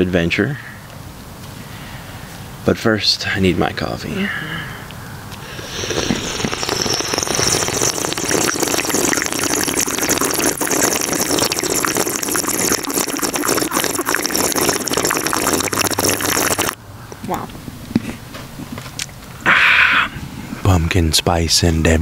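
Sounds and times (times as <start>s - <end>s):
coffee maker hissing and whirring: 5.4s - 16.8s.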